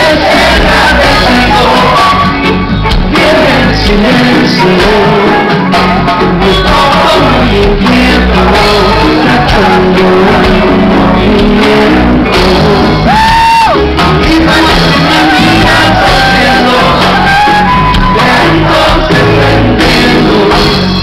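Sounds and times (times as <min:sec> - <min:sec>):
voices singing: 0:00.0 - 0:13.1, 0:14.0 - 0:21.0
drums: 0:00.0 - 0:21.0
electric bass: 0:00.0 - 0:21.0.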